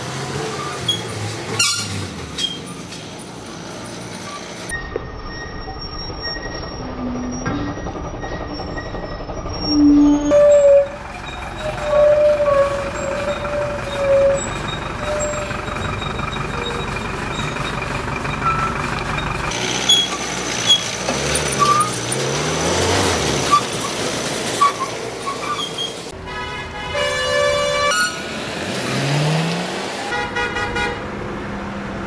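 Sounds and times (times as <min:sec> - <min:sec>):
truck engine rising and falling: 0:00.0 - 0:26.2, 0:27.5 - 0:30.2
truck brakes squealing: 0:00.4 - 0:26.2, 0:27.6 - 0:29.3
short high squeaks: 0:00.6 - 0:03.1, 0:04.2 - 0:18.8, 0:19.8 - 0:20.9, 0:24.6 - 0:26.1.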